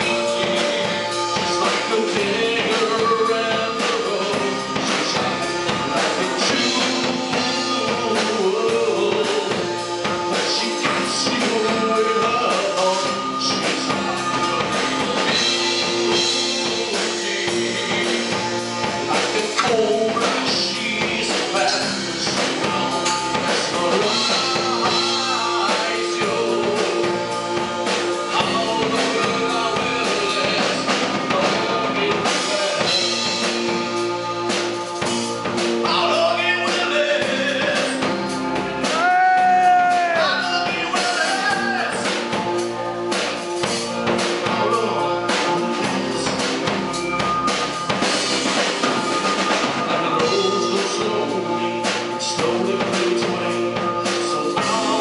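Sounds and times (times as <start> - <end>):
male singer: 0.0 - 34.0, 35.8 - 42.4, 43.6 - 46.8, 49.3 - 55.0
bass guitar: 0.0 - 55.0
drum kit: 0.0 - 55.0
electric guitar: 0.0 - 55.0.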